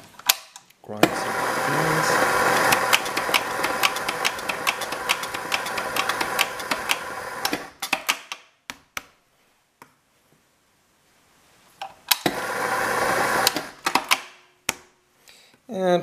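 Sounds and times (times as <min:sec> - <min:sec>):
coffee grinder grinding beans: 0:01.0 - 0:07.8, 0:12.1 - 0:14.0.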